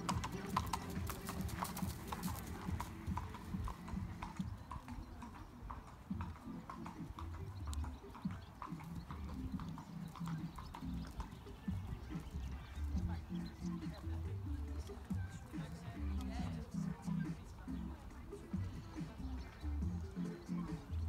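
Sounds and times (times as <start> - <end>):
horse hoofbeats on sand: 0.0 - 21.0.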